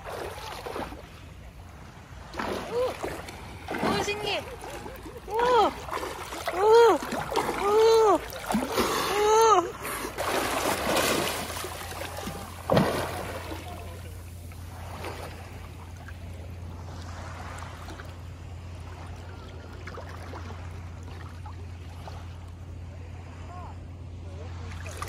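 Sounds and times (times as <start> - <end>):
swimmer splashing: 0.0 - 23.5
steady low hum: 0.0 - 25.0
water lapping: 0.0 - 25.0
sharp loud splash: 2.3 - 4.7, 10.1 - 14.1.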